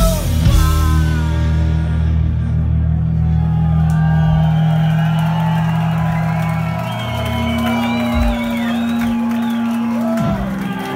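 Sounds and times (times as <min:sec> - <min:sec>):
heavy rock band playing live: 0:00.0 - 0:10.9
crowd whooping: 0:02.5 - 0:10.9.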